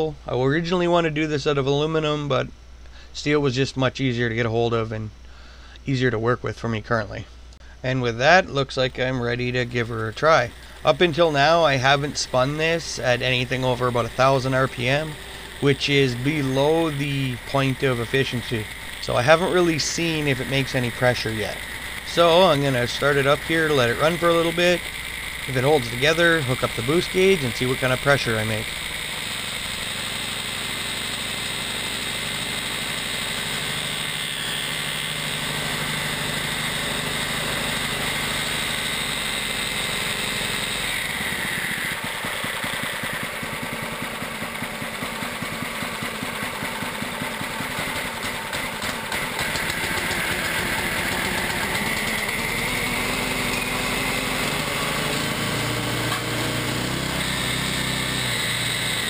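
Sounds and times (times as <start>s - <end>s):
single-cylinder engine running: 8.6s - 59.0s.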